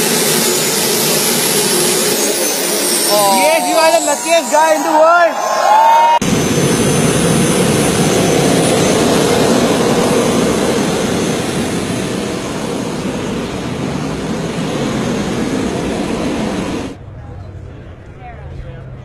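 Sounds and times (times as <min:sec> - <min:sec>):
turbine motorcycle engine running: 0:00.0 - 0:04.2, 0:06.2 - 0:17.0.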